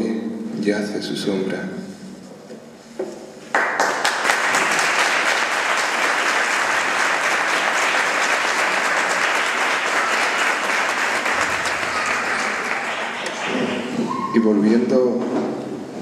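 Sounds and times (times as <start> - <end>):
audience applauding: 3.5 - 14.4.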